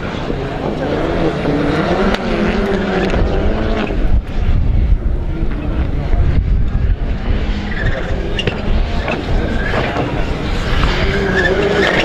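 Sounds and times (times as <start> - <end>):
race car engines revving: 0.0 - 12.0.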